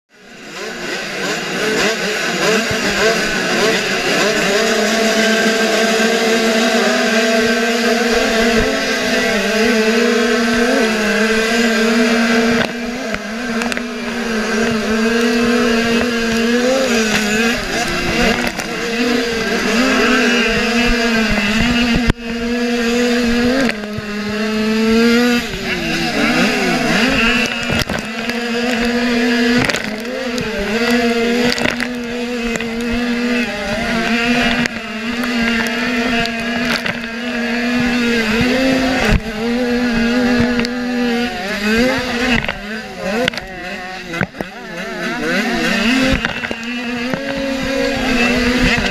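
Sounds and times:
motorcycle engine revving under load: 0.1s - 48.9s.

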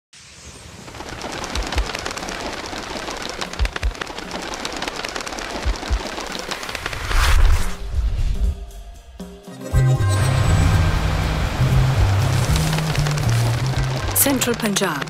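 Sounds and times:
pigeon wings clattering: 0.8s - 7.0s, 12.0s - 15.0s.

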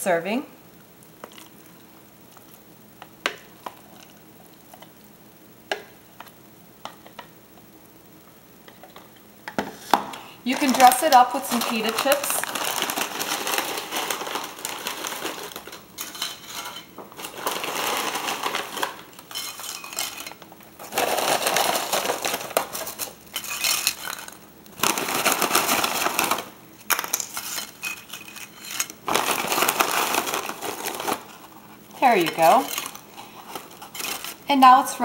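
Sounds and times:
snack bag rustling: 10.4s - 34.5s
chips clattering onto plate: 10.5s - 31.4s, 32.2s - 34.6s.

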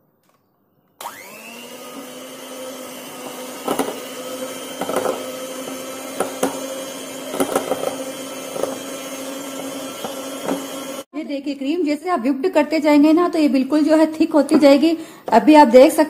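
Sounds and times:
electric hand beater whining: 1.0s - 11.1s.

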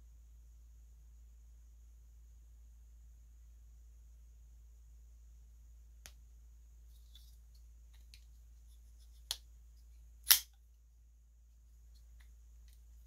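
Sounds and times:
folding knife clicks: 10.3s - 10.5s.

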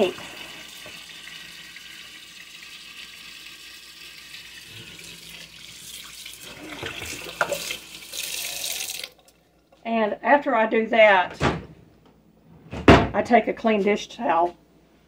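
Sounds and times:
faucet water running into sink: 0.0s - 9.8s.

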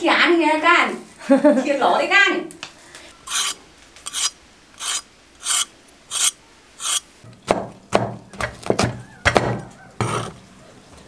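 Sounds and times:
cleaver scraping cucumber skin: 3.3s - 7.1s
chopping on wooden board: 7.5s - 10.2s.

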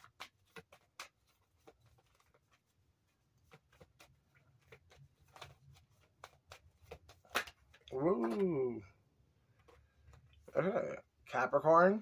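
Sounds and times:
cards being shuffled: 0.0s - 8.9s.

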